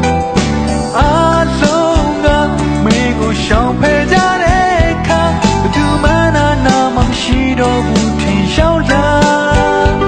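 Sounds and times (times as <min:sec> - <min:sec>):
band with steady drum beat: 0:00.0 - 0:10.0
man singing with vibrato: 0:00.9 - 0:10.0.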